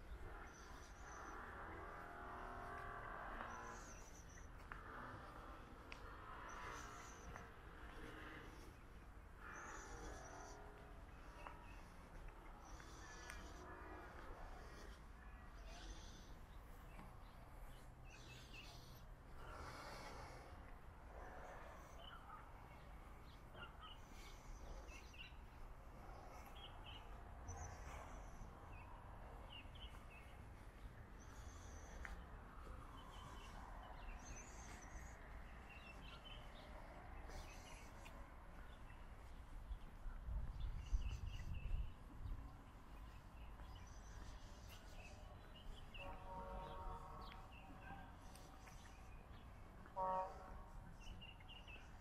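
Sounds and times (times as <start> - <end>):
low outdoor rumble: 0.0 - 51.0
small birds chirping: 14.6 - 20.5, 22.0 - 52.0.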